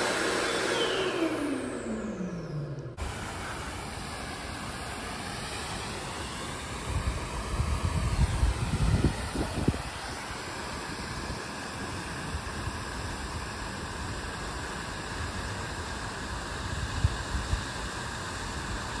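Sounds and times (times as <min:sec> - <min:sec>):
fountain water splashing: 0:03.0 - 0:19.0.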